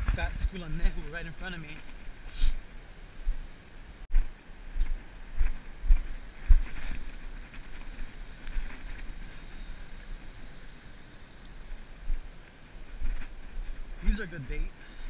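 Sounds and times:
water hissing: 0:08.0 - 0:12.8.

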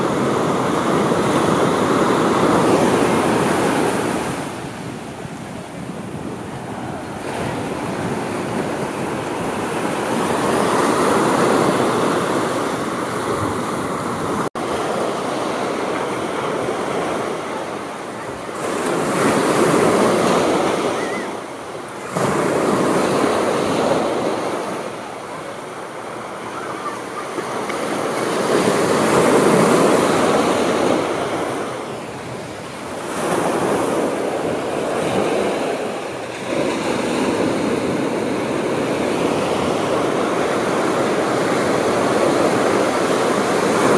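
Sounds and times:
ocean waves breaking on beach: 0:00.0 - 0:43.9.

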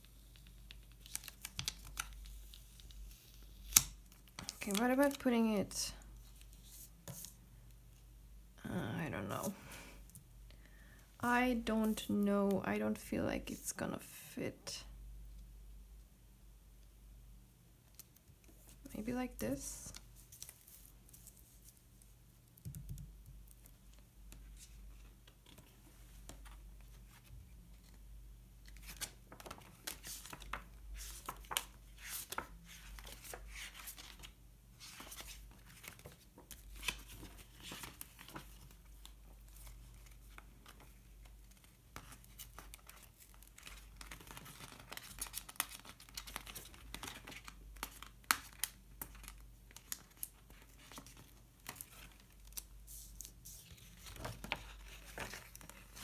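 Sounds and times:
paper rustling: 0:28.6 - 0:56.0.

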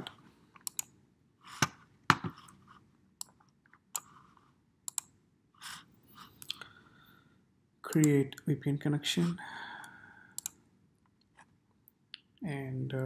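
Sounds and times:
computer mouse clicks: 0:00.6 - 0:01.0, 0:03.2 - 0:04.2, 0:04.9 - 0:05.2, 0:10.4 - 0:10.6.

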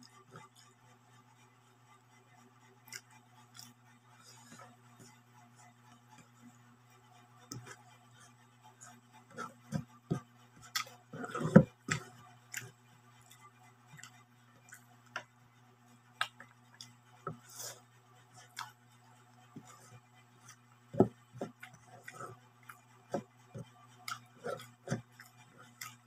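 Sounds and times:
steady low hum: 0:00.0 - 0:26.0
chewing and mouth noises: 0:02.8 - 0:04.6.

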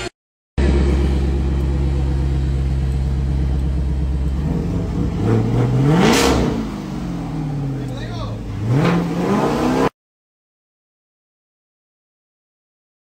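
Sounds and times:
car engine idling and revving: 0:00.0 - 0:09.9.

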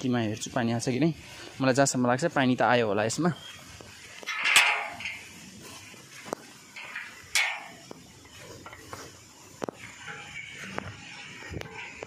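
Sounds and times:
metal bolt latch scraping: 0:04.3 - 0:05.2, 0:06.8 - 0:07.8
sharp metal clank: 0:04.3 - 0:05.2, 0:06.8 - 0:07.8.

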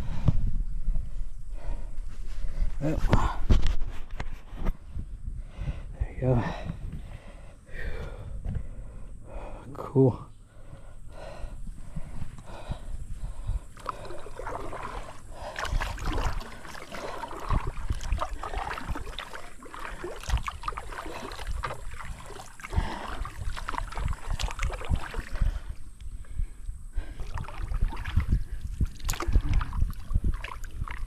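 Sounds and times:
paddle strokes splashing water: 0:13.7 - 0:25.9, 0:27.0 - 0:31.0.

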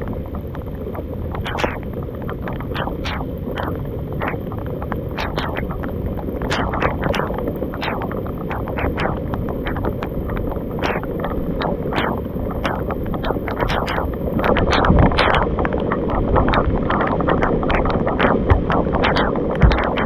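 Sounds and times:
wind rumbling on microphone: 0:00.0 - 0:20.0
sharp ticks and taps: 0:00.4 - 0:20.0.

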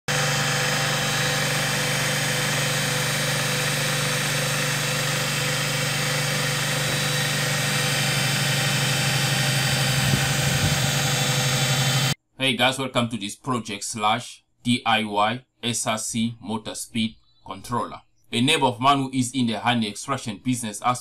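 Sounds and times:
electric motor humming: 0:00.1 - 0:12.2.

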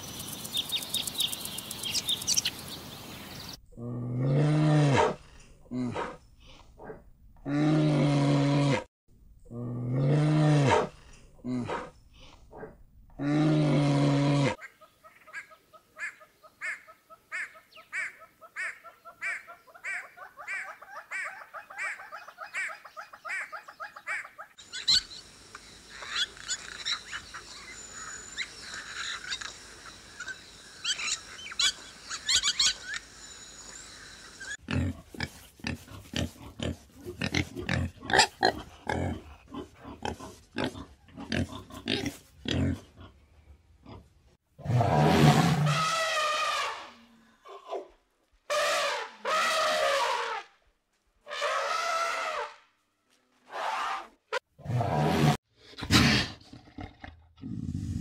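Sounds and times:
animal clicks and high chirps: 0:00.0 - 0:02.9, 0:24.7 - 0:33.8.

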